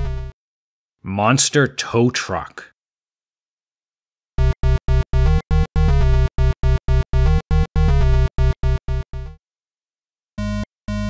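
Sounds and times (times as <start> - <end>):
chiptune synthesizer music: 0.0 - 0.3, 4.4 - 9.4.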